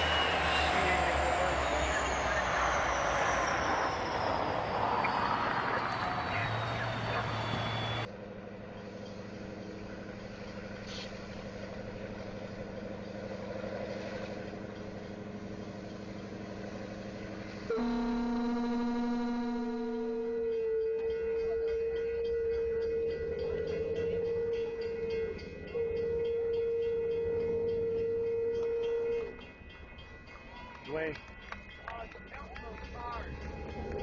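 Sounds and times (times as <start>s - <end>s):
snow plow train rushing: 0.0s - 30.2s
train diesel engine hum: 0.0s - 34.0s
loud steady tone: 17.7s - 20.8s.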